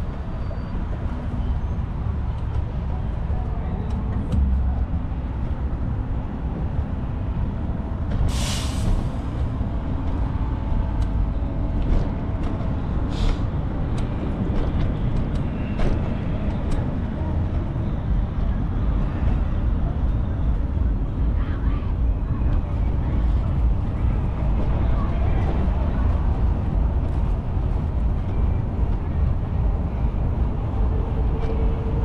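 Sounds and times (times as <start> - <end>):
road traffic rumble: 0.0 - 32.0
short hisses: 8.3 - 9.0, 13.1 - 13.4.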